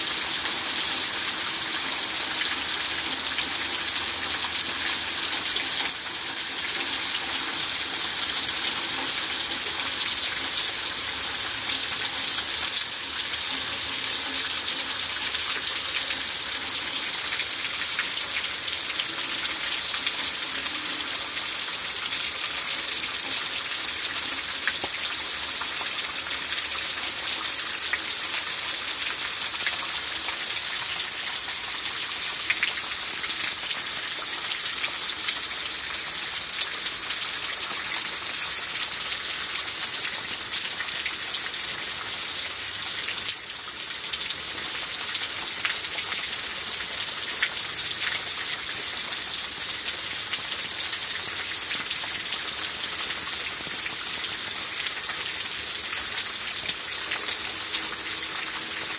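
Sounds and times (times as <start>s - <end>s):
runoff pouring off roof: 0.0s - 58.9s.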